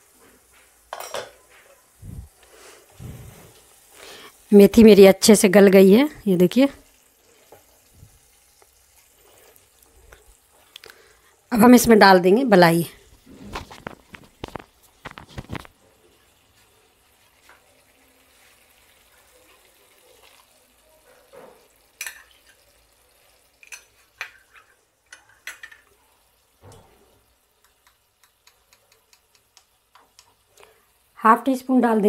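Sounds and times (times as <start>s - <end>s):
faint sizzle: 0.0s - 32.0s
spoon tapping a pan: 0.9s - 1.6s, 21.9s - 22.6s, 23.6s - 25.9s, 27.6s - 30.4s.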